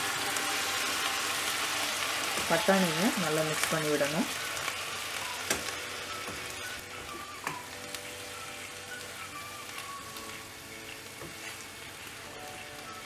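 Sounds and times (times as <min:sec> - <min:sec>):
vegetables sizzling in a pan: 0:00.0 - 0:13.0
wooden spatula stirring: 0:06.3 - 0:13.0.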